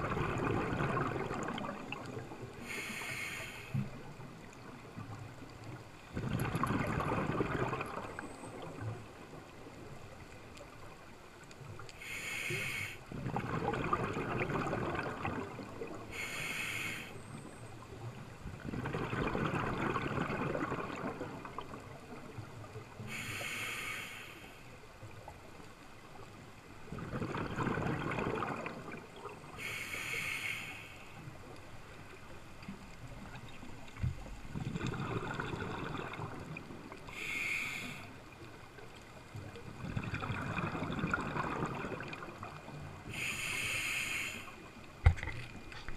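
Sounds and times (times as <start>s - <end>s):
bubbling exhalations: 0.0s - 2.2s, 6.1s - 8.2s, 13.1s - 16.0s, 18.6s - 21.7s, 26.9s - 29.3s, 34.5s - 37.3s, 39.7s - 43.2s
hissing regulator inhalations: 2.6s - 3.9s, 12.0s - 13.0s, 16.1s - 17.2s, 23.1s - 24.7s, 29.6s - 31.2s, 37.0s - 38.2s, 43.1s - 44.7s.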